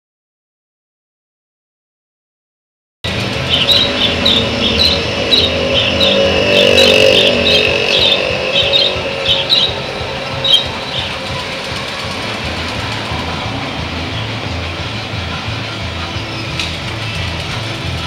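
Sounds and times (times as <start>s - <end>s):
street traffic: 3.0s - 18.0s
high repeating squeak: 3.1s - 13.6s.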